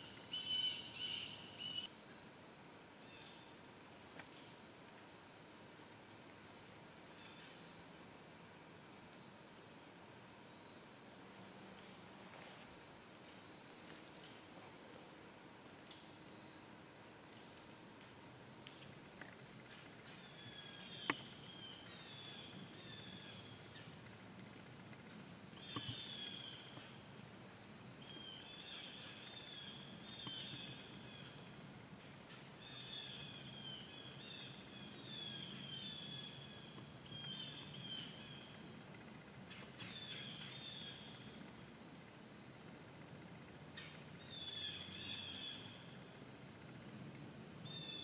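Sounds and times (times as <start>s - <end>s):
bird chirps: 0.0s - 1.9s
insect drone: 0.0s - 48.0s.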